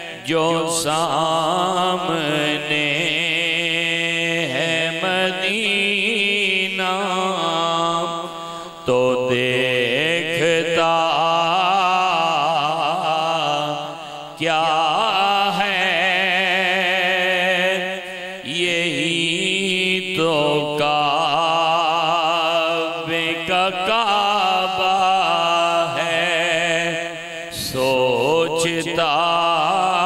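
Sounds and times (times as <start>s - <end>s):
person singing devotional song: 0.0s - 30.0s
singer breathing: 8.3s - 8.9s, 13.8s - 14.4s, 18.0s - 18.4s.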